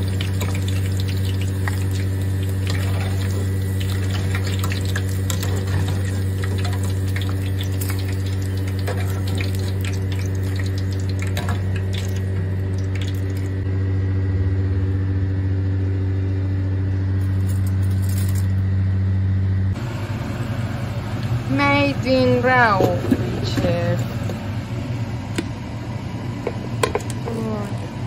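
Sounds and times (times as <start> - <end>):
potatoes frying in hot oil: 0.0 - 13.6
low hum: 0.0 - 26.8.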